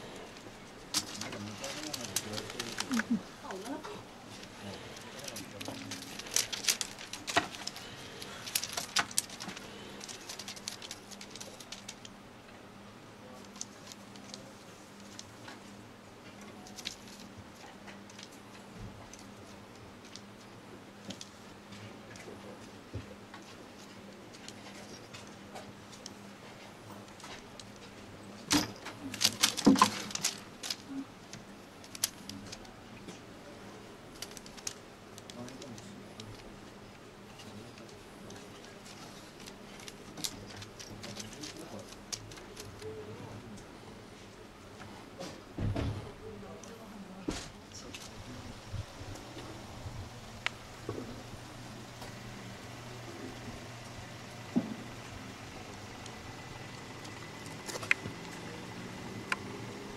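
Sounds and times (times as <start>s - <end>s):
plastic crinkling: 0.0s - 12.2s, 13.2s - 15.7s, 16.4s - 20.4s, 23.4s - 43.6s, 54.9s - 59.5s
sharp clicks and rattles: 0.9s - 12.2s, 16.4s - 19.4s, 27.0s - 33.2s, 34.1s - 36.6s, 37.3s - 43.0s, 53.1s - 59.5s.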